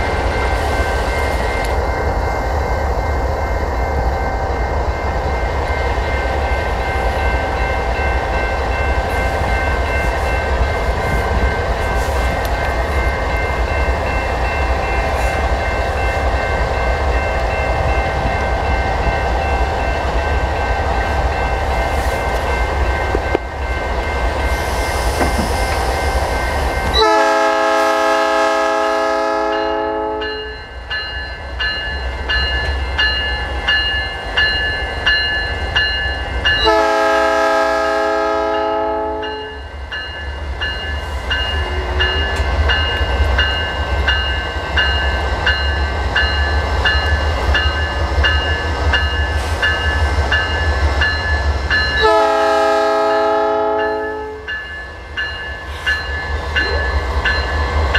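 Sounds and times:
crossing bell ringing: 0.0 - 24.7, 25.9 - 57.9
passing train rumble: 0.0 - 57.9
locomotive horn blasts: 27.0 - 30.5, 36.6 - 39.6, 52.0 - 54.5.

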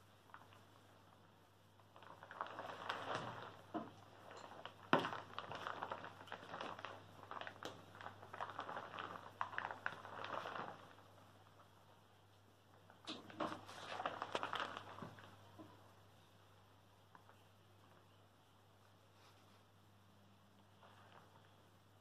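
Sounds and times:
paper and brushes rustling: 18.8 - 19.9.

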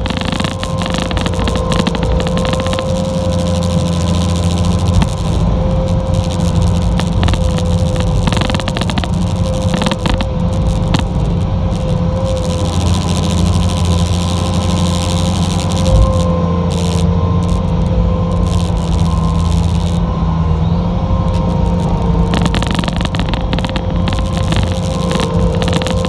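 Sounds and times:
sharp clicks and knocks: 0.0 - 3.6, 5.9 - 12.0, 21.3 - 26.0
loader diesel engine running: 0.0 - 26.0
steady whine: 0.0 - 26.0.

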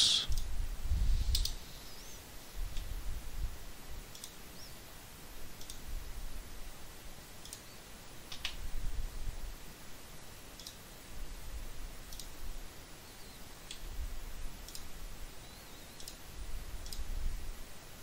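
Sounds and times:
computer mouse clicking: 1.3 - 1.6, 4.1 - 4.4, 5.6 - 5.8, 7.4 - 7.6, 10.6 - 10.8, 12.1 - 12.4, 14.6 - 14.9, 15.9 - 16.2, 16.8 - 17.1.

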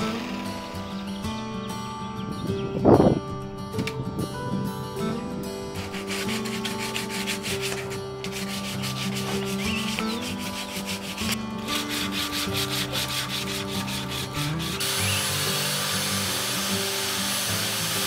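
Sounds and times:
hand sanding wood: 5.8 - 18.0.

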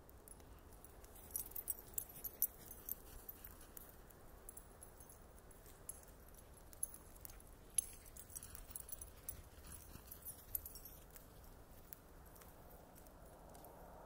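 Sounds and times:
bonfire crackling: 0.0 - 13.8.

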